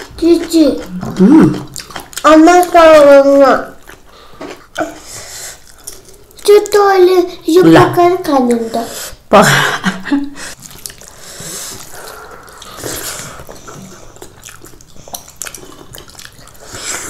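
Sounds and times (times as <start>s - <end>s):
wet eating sounds: 0.0s - 7.4s, 10.5s - 17.0s
person exclaiming: 0.9s - 1.6s.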